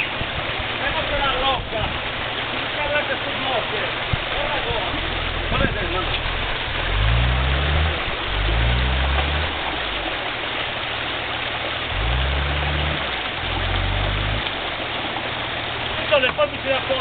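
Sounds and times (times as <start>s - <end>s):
engine revving: 5.0s - 10.0s, 11.8s - 14.6s.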